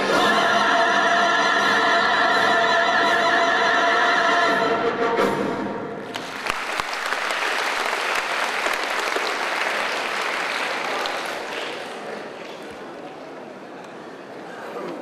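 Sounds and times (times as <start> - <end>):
stage song with backing music: 0.0 - 12.1
audience applauding: 6.1 - 13.9.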